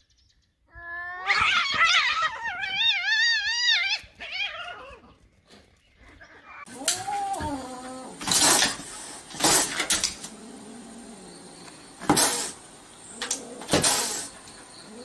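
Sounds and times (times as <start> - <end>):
cat yowling: 6.6 - 8.5.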